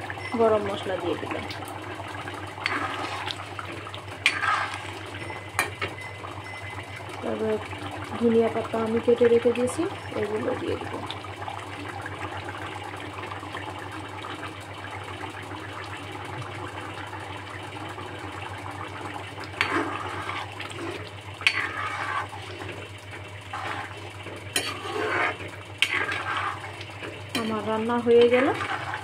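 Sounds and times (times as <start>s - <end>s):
metal spoon scraping pan: 2.6s - 3.4s, 4.2s - 6.2s, 19.6s - 22.4s, 23.5s - 26.7s, 27.3s - 29.0s.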